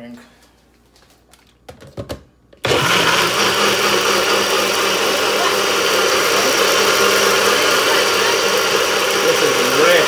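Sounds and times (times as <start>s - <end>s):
blender motor running: 2.6s - 10.0s.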